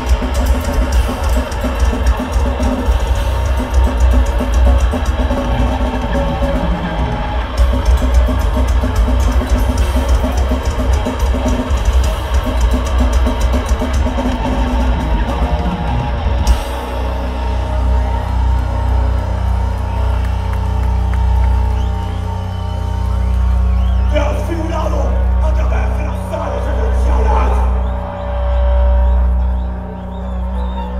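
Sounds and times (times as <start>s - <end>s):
fast drumming with cymbal crashes: 0.0s - 23.2s
metal band playing: 0.0s - 30.8s.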